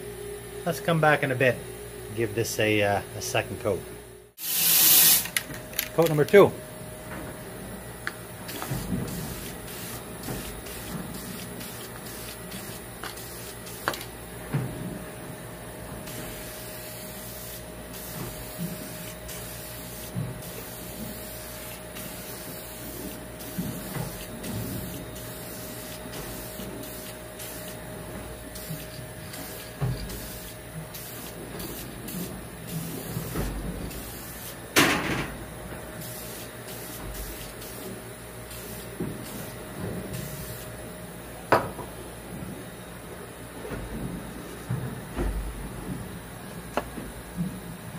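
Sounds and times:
aerosol can spraying: 0:04.4 - 0:05.3, 0:08.5 - 0:14.0, 0:16.1 - 0:27.8, 0:28.6 - 0:32.2, 0:36.0 - 0:37.9
aerosol spray can hissing: 0:04.4 - 0:05.3, 0:08.5 - 0:14.0, 0:28.6 - 0:31.9.

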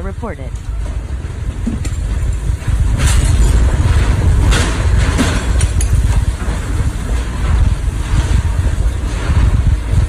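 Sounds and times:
strong wind on microphone: 0:00.0 - 0:10.0
debris clicking and clattering: 0:00.9 - 0:10.0.

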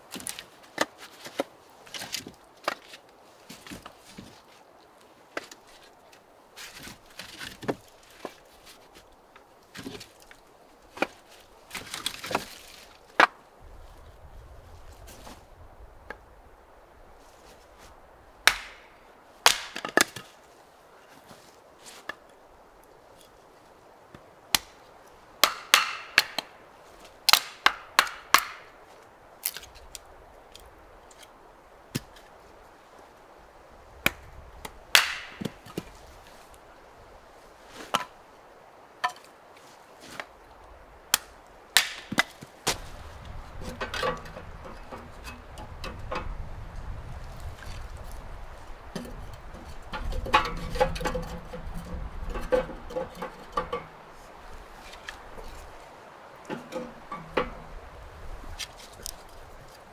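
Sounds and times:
sharp knocks and cracks: 0:09.7 - 0:13.4, 0:18.4 - 0:20.3, 0:24.1 - 0:24.8, 0:25.4 - 0:26.5, 0:27.3 - 0:28.8, 0:34.0 - 0:36.0, 0:41.1 - 0:46.3, 0:48.9 - 0:54.0.

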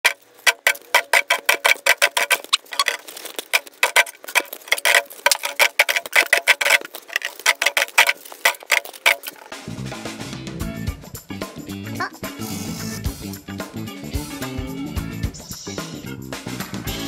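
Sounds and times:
rapid sharp clicks: 0:00.0 - 0:09.6.

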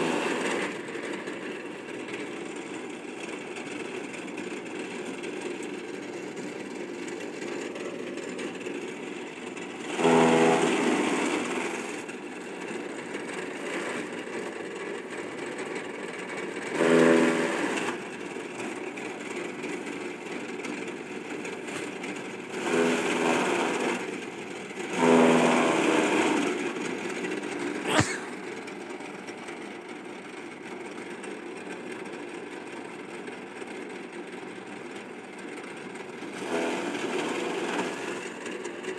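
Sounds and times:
chaff cutter chopping grass: 0:00.0 - 0:02.8, 0:06.8 - 0:15.8, 0:16.4 - 0:19.2, 0:21.3 - 0:24.2, 0:24.8 - 0:27.0, 0:27.7 - 0:28.4, 0:36.2 - 0:38.9.

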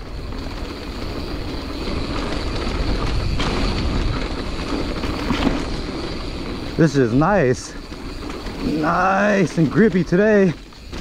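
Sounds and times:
bike tyres rolling on dirt: 0:00.0 - 0:11.0.

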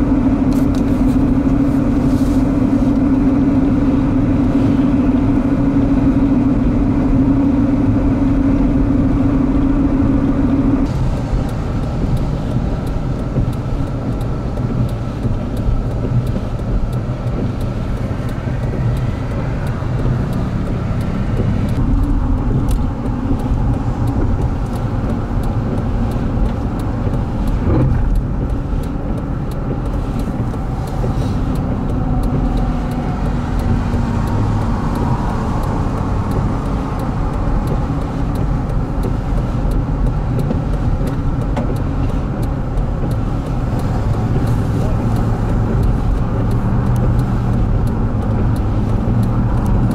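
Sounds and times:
engine and tyre rumble: 0:00.0 - 0:49.9
faint ticks: 0:11.2 - 0:49.9.

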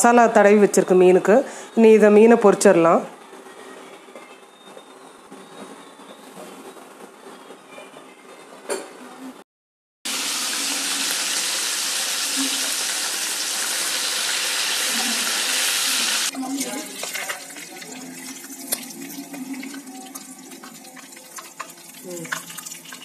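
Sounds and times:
fish sizzling in hot oil: 0:10.1 - 0:23.0.

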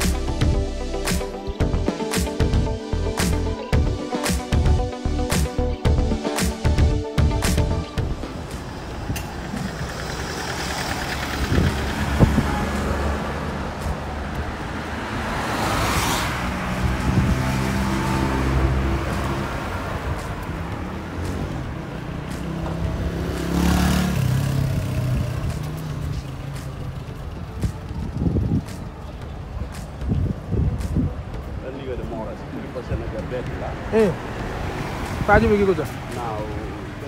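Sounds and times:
cars driving past: 0:08.0 - 0:37.0.

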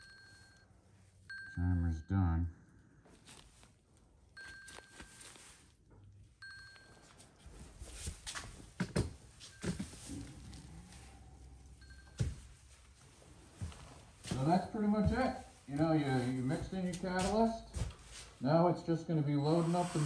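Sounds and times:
watch timer alarm chiming: 0:00.0 - 0:00.7, 0:01.3 - 0:02.2, 0:11.8 - 0:12.2
handling knocks and rustles: 0:04.4 - 0:06.1, 0:06.7 - 0:10.7, 0:11.8 - 0:18.4.

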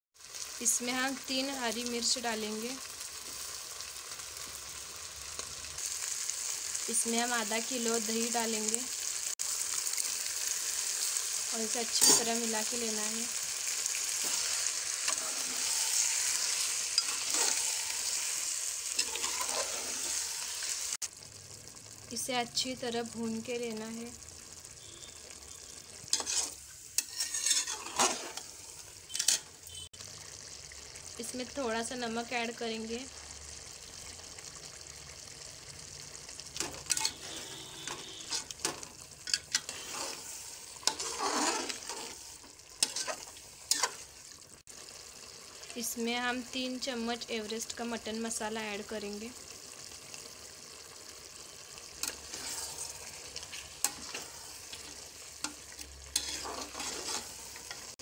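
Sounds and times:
food sizzling in a pot: 0:00.2 - 0:58.0
spoon scraping pot: 0:19.0 - 0:20.3, 0:26.1 - 0:28.5, 0:29.1 - 0:29.5, 0:36.6 - 0:42.2, 0:42.8 - 0:44.0, 0:52.0 - 0:52.9, 0:53.5 - 0:57.9.

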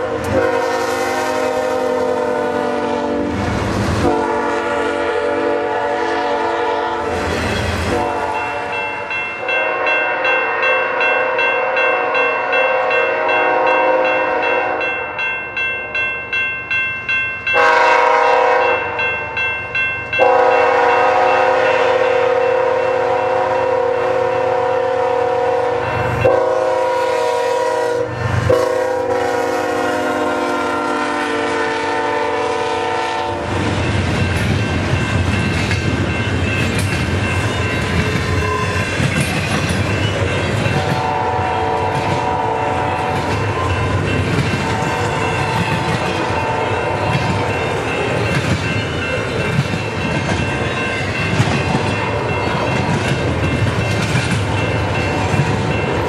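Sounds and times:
locomotive air horn blasts: 0:00.0 - 0:03.4, 0:04.0 - 0:08.7, 0:09.4 - 0:15.0, 0:17.6 - 0:19.0, 0:20.2 - 0:33.6, 0:40.8 - 0:43.3, 0:44.7 - 0:47.2
freight train rumbling past: 0:00.0 - 0:56.0
wheels clicking over rail joints: 0:34.1 - 0:41.1.

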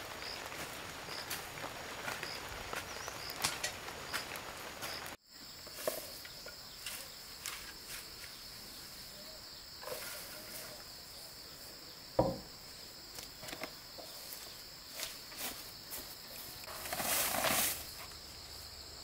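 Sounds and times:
insects droning: 0:00.0 - 0:19.0
sharp thump: 0:12.2 - 0:12.5.

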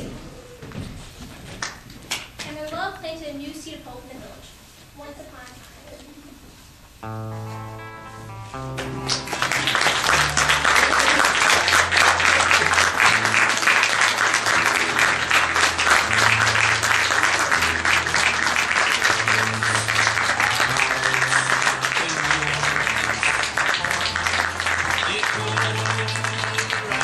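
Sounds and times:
low music notes: 0:07.0 - 0:27.0
audience applauding: 0:08.6 - 0:27.0.

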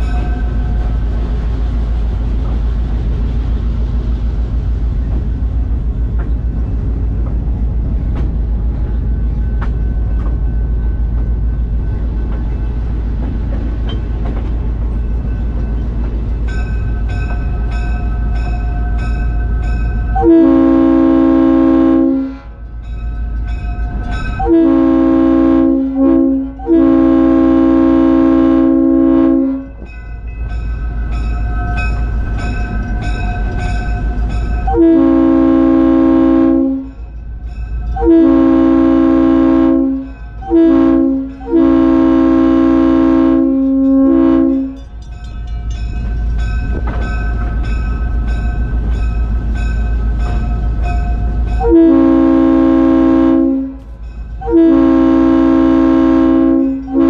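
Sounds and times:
locomotive air horn blasts: 0:20.2 - 0:22.6, 0:24.4 - 0:29.7, 0:34.7 - 0:36.8, 0:38.0 - 0:44.8, 0:51.6 - 0:53.8, 0:54.4 - 0:57.0.

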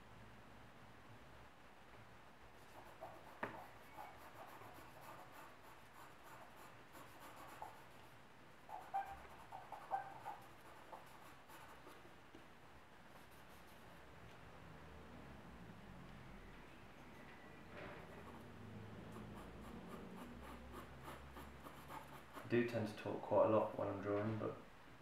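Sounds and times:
pencil scratching on paper: 0:02.6 - 0:08.1, 0:08.7 - 0:12.0, 0:13.2 - 0:13.8, 0:18.1 - 0:22.8.

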